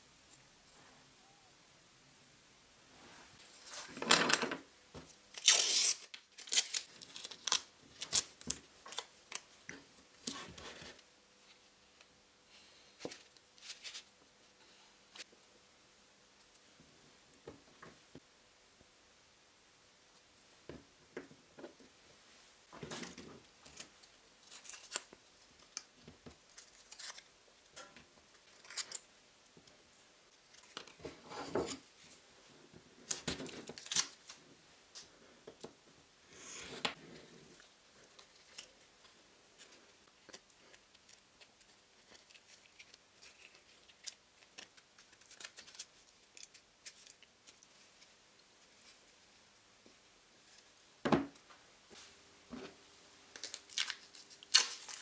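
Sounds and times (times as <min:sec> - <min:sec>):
masking tape crinkling: 0:05.3 - 0:09.6, 0:23.0 - 0:27.3, 0:33.0 - 0:34.4, 0:37.5 - 0:48.1, 0:53.3 - 0:55.0.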